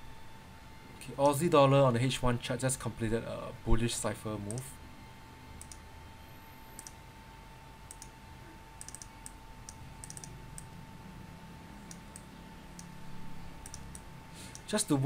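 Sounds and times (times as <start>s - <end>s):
faint steady whine: 0.0s - 15.0s
computer mouse clicking: 4.5s - 4.7s, 5.6s - 5.8s, 6.8s - 7.0s, 7.9s - 8.2s, 8.8s - 10.7s, 11.8s - 12.9s, 13.6s - 14.7s.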